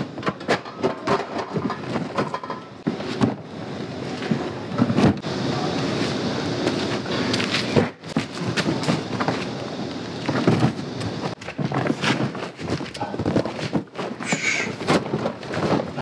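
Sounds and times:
bags and boxes thumping: 0:10.2 - 0:16.0
rustling fabric and plastic: 0:10.3 - 0:16.0.

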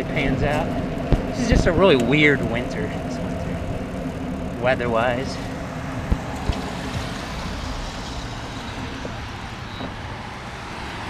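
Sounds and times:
bicycle tyres on wet pavement: 0:00.0 - 0:11.0
wind rushing: 0:05.8 - 0:11.0.

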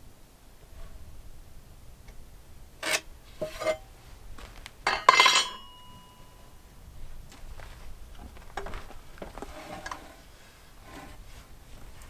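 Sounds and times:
short metallic ring: 0:04.9 - 0:06.6.

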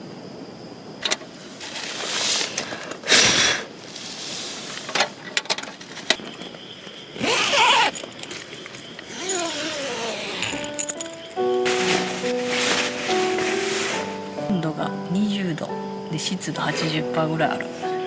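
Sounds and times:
puff of breath: 0:02.6 - 0:03.7
handling clicks and rustling: 0:04.8 - 0:06.6, 0:07.2 - 0:13.5
zipper being pulled: 0:07.2 - 0:08.0, 0:09.1 - 0:10.8.

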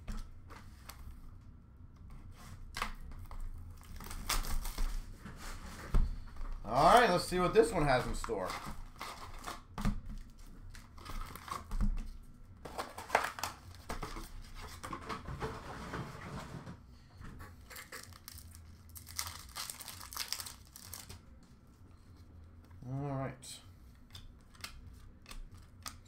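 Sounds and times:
foil wrapper crinkling and tearing: 0:03.2 - 0:05.0, 0:17.6 - 0:21.2.

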